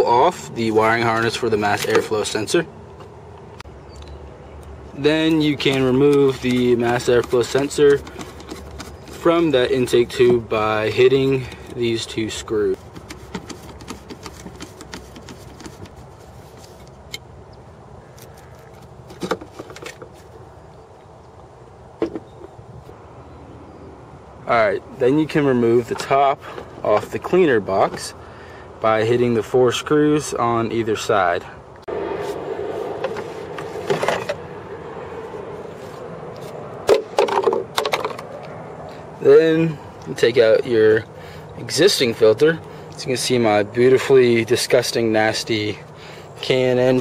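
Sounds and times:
hand tool clicking on hard plastic: 5.3 - 9.2
metal and plastic clatter: 5.6 - 9.3, 18.6 - 20.2, 33.7 - 34.4, 36.9 - 38.3.

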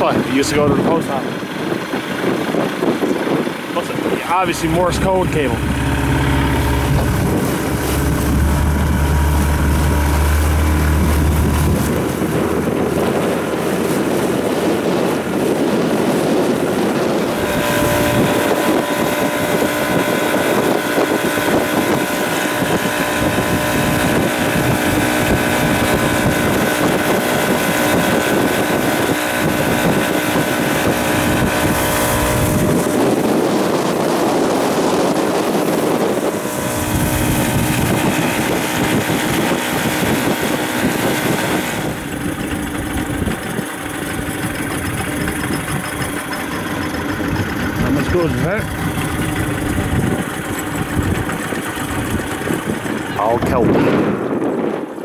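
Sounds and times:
outboard motor running: 0.0 - 55.0
wind buffeting microphone: 0.0 - 55.0.

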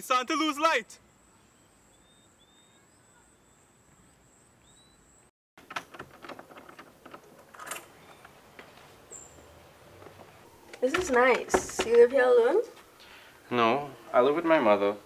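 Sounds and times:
high bird chirps: 1.2 - 5.3, 9.0 - 9.5
door opening clicks and knocks: 5.6 - 8.8, 9.9 - 12.2.

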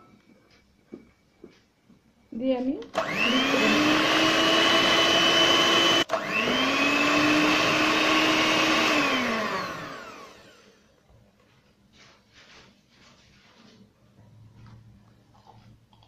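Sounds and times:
electric hand mixer whining: 3.0 - 10.9.

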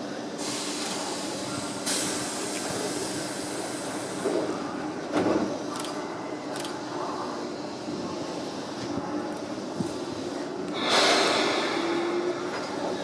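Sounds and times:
electric train equipment hum: 0.0 - 13.0
compressed air hiss: 10.8 - 12.2.

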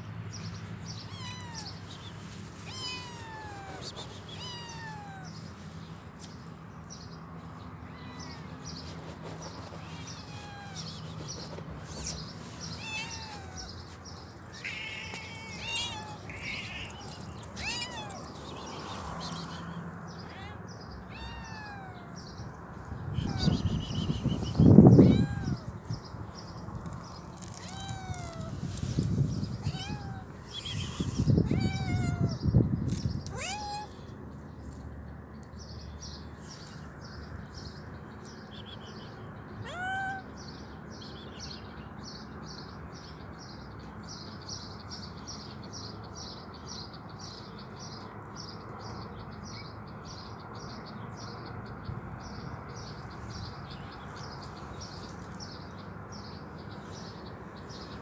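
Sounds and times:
cat meowing: 1.0 - 1.8, 2.6 - 5.4, 7.8 - 8.6, 9.8 - 11.0, 12.0 - 13.9, 14.5 - 22.3, 23.2 - 23.7, 24.9 - 25.8, 27.4 - 32.5, 33.2 - 34.0, 39.6 - 40.4.

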